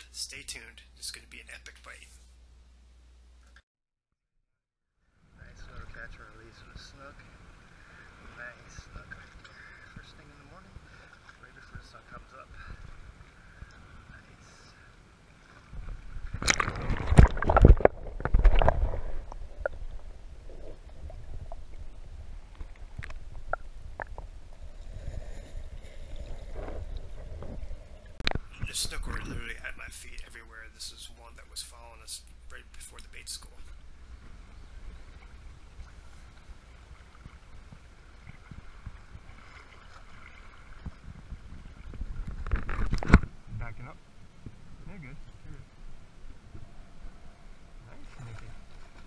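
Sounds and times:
low steady rumble: 5.1s - 49.0s
water sloshing: 7.1s - 30.2s, 33.5s - 43.3s, 47.9s - 49.0s
fish thrashing and splashing: 16.2s - 21.7s
camera handling rumble: 16.3s - 19.8s, 42.2s - 43.3s.

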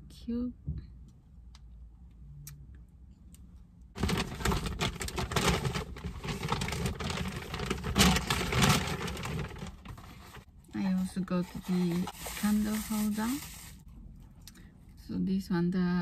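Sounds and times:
shopping bag rustling: 4.0s - 13.8s.

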